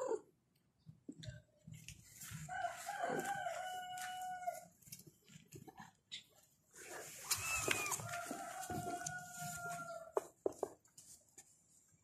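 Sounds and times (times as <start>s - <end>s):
rooster crowing: 2.5s - 4.7s, 7.4s - 10.2s.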